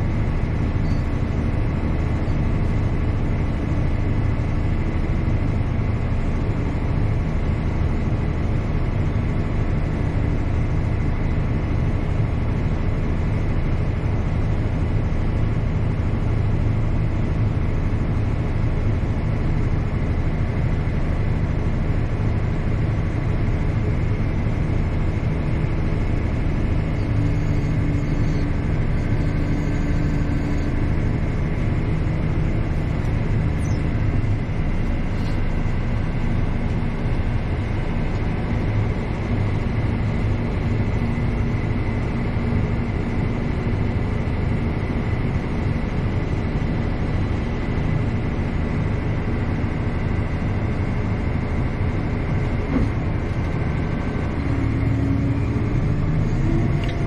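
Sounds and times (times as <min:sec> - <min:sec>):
faint high whine: 0:00.0 - 0:03.6, 0:23.1 - 0:46.4
tractor engine drone: 0:00.0 - 0:57.0.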